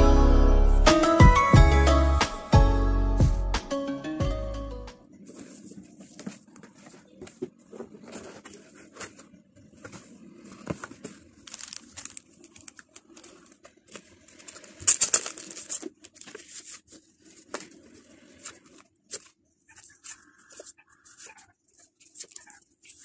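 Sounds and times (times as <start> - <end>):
cardboard box handling: 5.3 - 12.2
plastic wrapping crinkling: 11.4 - 13.6.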